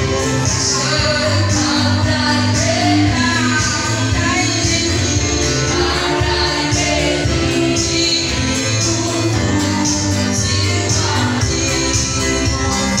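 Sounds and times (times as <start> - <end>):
keyboard: 0.0 - 13.0
voices singing gospel: 0.0 - 13.0.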